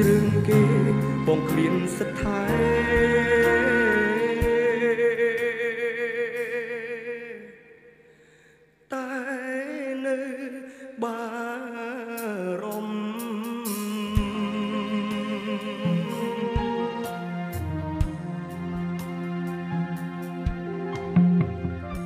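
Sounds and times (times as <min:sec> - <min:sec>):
musical accompaniment: 0:00.0 - 0:06.8, 0:12.7 - 0:22.0
man singing: 0:00.0 - 0:08.0, 0:08.9 - 0:18.7.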